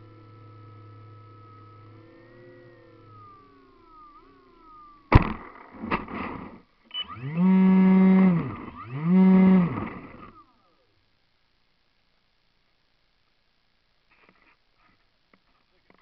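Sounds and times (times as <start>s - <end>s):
model aircraft motor revving: 0.0s - 5.6s, 7.0s - 10.5s.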